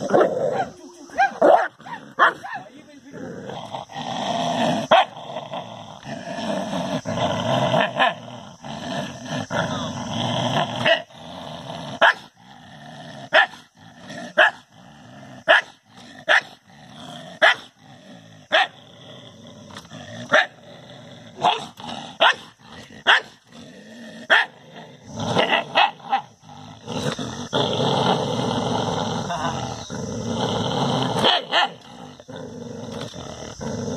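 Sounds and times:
dog barking: 0:00.2 - 0:02.7, 0:12.0 - 0:12.2, 0:13.3 - 0:13.6, 0:14.4 - 0:14.6, 0:15.5 - 0:16.5, 0:17.4 - 0:17.7, 0:18.5 - 0:18.7, 0:21.4 - 0:23.4, 0:24.3 - 0:24.6, 0:25.7 - 0:26.3, 0:31.2 - 0:31.8.

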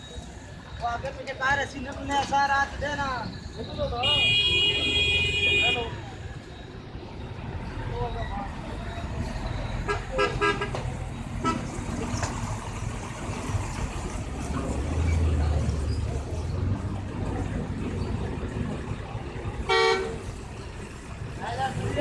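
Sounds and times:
vehicle horn toots: 0:04.0 - 0:06.0, 0:19.7 - 0:20.2.

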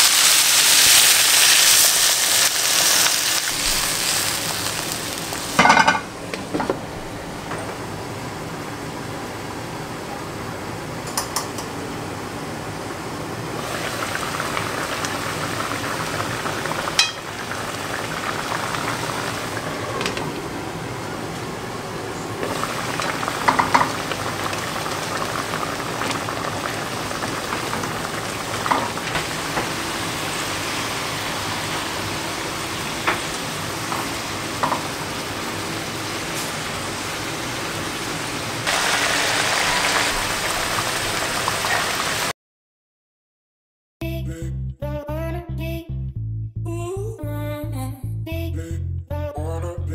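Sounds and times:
lid and spoon clinking on pan: 0:05.6 - 0:06.1, 0:17.0 - 0:17.3
sauce bubbling in frying pan: 0:13.6 - 0:19.8, 0:22.4 - 0:36.0.

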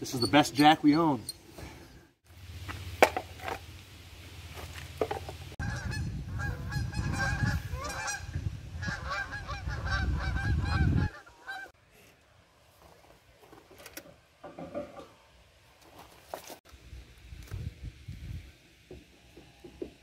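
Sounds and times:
geese honking in flight: 0:05.6 - 0:11.7.

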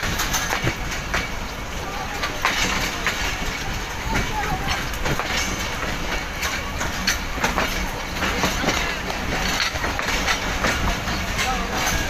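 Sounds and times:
train rumbling: 0:00.0 - 0:12.0
train wheel clacks: 0:00.0 - 0:12.0.

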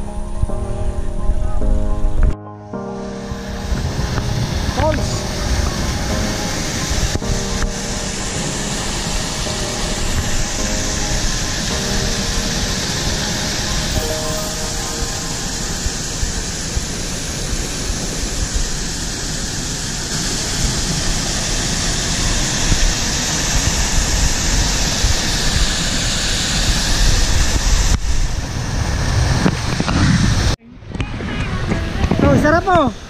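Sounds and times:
water rushing over rocks: 0:03.2 - 0:28.4
wind buffeting microphone: 0:03.2 - 0:33.0.

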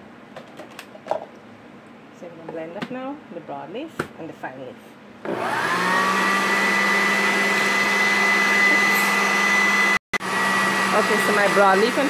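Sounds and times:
blender running: 0:05.2 - 0:12.0.

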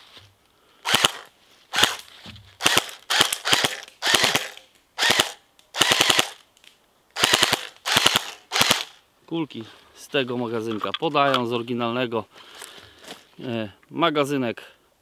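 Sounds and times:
airsoft gun firing bursts: 0:00.9 - 0:02.0, 0:02.6 - 0:06.4, 0:07.2 - 0:09.0.

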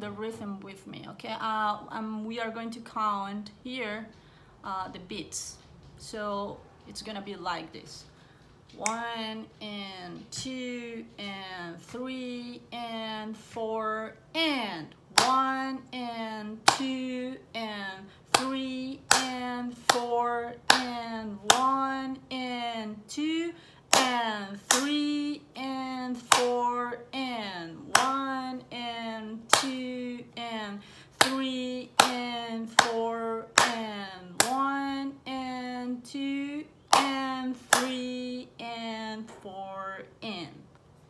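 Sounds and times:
hands clapping a rhythm: 0:08.8 - 0:09.0, 0:15.2 - 0:15.7, 0:16.6 - 0:17.2, 0:18.3 - 0:22.1, 0:23.1 - 0:25.3, 0:26.1 - 0:26.9, 0:27.9 - 0:28.6, 0:29.5 - 0:30.0, 0:31.2 - 0:35.0, 0:36.9 - 0:38.2
woman chanting: 0:08.8 - 0:40.6
hand claps in steady beat: 0:16.6 - 0:17.0, 0:18.3 - 0:20.1, 0:20.7 - 0:21.9, 0:23.9 - 0:25.0, 0:26.2 - 0:26.6, 0:29.5 - 0:29.8, 0:31.2 - 0:33.0, 0:33.6 - 0:33.8.

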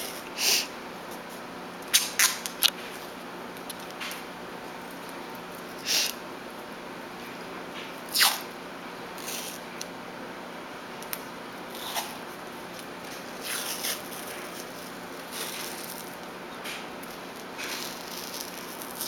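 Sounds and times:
tape ripping off roll: 0:01.9 - 0:02.7, 0:08.1 - 0:08.5, 0:13.1 - 0:19.0.

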